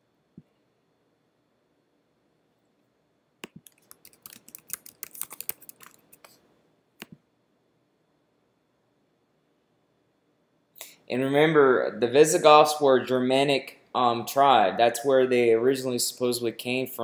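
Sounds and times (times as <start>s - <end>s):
computer keyboard typing: 3.4s - 6.4s.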